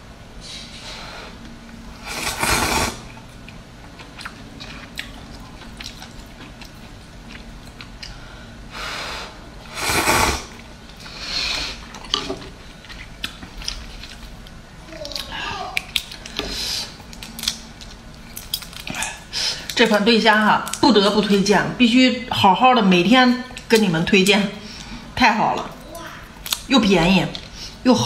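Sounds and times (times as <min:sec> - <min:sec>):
noisy slurping of noodles: 0:02.0 - 0:03.1, 0:09.7 - 0:11.9
chewing: 0:03.1 - 0:08.2, 0:11.8 - 0:19.8.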